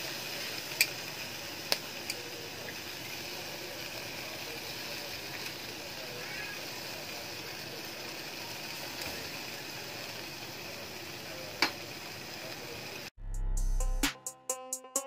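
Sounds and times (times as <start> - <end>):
meat sizzling on a grill: 0.0 - 13.1.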